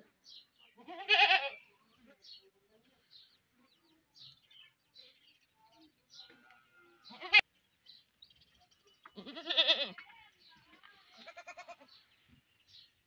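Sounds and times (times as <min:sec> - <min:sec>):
goat bleating: 0:00.7 - 0:01.7, 0:06.4 - 0:07.4, 0:09.1 - 0:10.1, 0:11.0 - 0:12.0.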